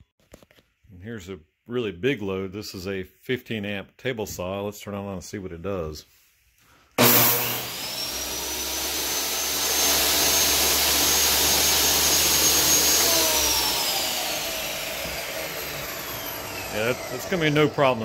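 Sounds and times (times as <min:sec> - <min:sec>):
table saw motor whining: 0:07.0 - 0:18.0.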